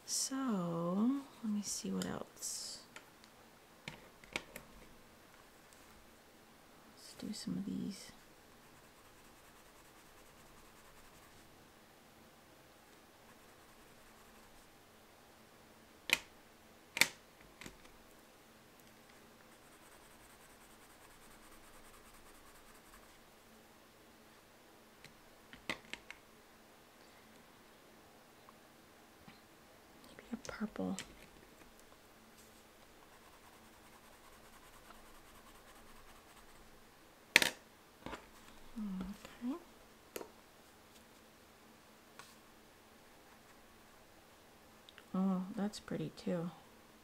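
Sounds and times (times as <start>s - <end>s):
wax pastel scratching on paper: 8.2s - 11.5s, 13.2s - 14.7s, 19.5s - 23.2s, 33.0s - 36.7s.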